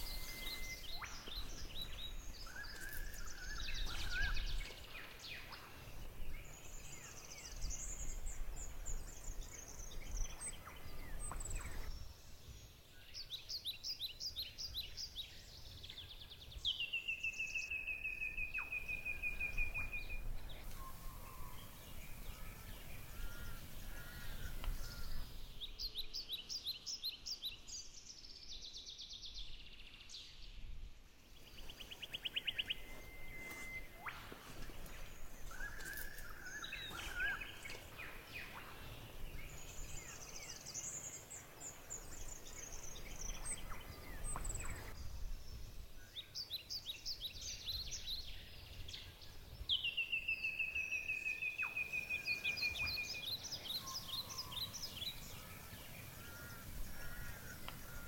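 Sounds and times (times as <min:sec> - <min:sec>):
long whistled bird note: 0:00.0 - 0:04.4, 0:17.7 - 0:25.4, 0:32.2 - 0:37.6
birds chirping and trilling: 0:00.0 - 0:12.1, 0:13.2 - 0:27.9, 0:31.4 - 0:58.0.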